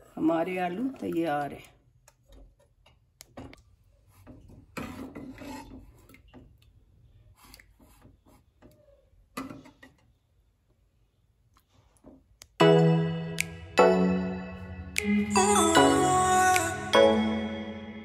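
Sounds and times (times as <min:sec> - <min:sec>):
metal ladle scraping a pot: 0:04.7 - 0:06.2.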